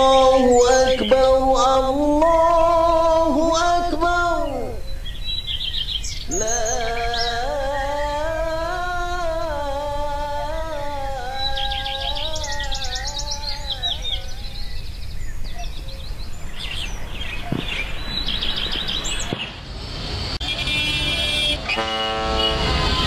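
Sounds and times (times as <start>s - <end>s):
chanted call to prayer: 0.0s - 5.0s, 6.3s - 14.7s
background hum: 0.0s - 19.4s
birds chirping: 0.0s - 23.0s
busy street noise: 11.5s - 23.0s
horn blast: 20.4s - 23.0s.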